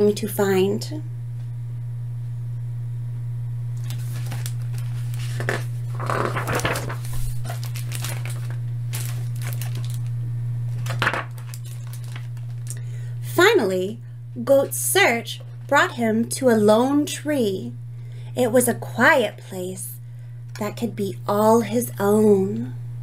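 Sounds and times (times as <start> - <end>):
steady low hum: 0.0 - 23.0
book pages rustling: 3.8 - 10.1, 10.7 - 12.7.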